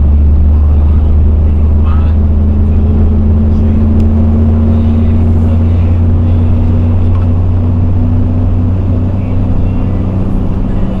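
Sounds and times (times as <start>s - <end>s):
road and wind noise: 0.0s - 11.0s
vehicle engine droning: 0.0s - 11.0s.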